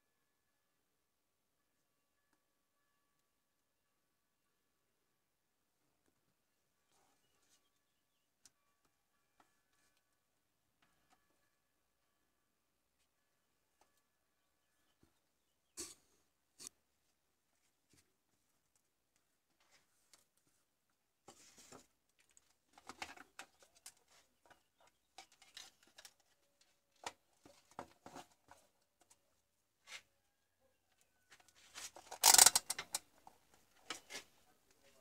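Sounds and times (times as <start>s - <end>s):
light handling clicks and rustles: 21.3s - 29.3s.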